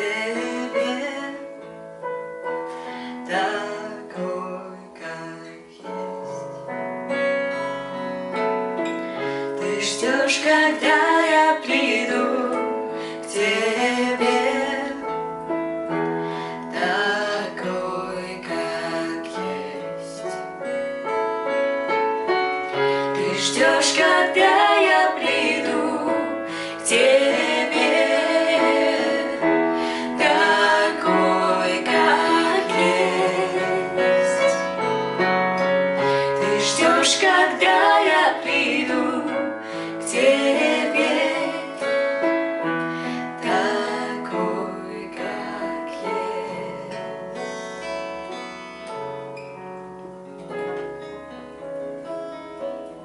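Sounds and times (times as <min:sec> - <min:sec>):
acoustic guitar: 0:00.0 - 0:53.0
piano: 0:00.0 - 0:53.0
women singing worship song: 0:09.6 - 0:15.0, 0:16.4 - 0:20.4, 0:22.9 - 0:34.7, 0:36.1 - 0:42.2, 0:43.0 - 0:47.0.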